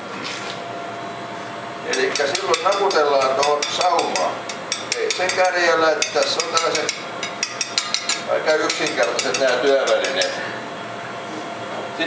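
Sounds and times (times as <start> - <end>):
people talking: 1.9 - 7.0, 8.3 - 10.5.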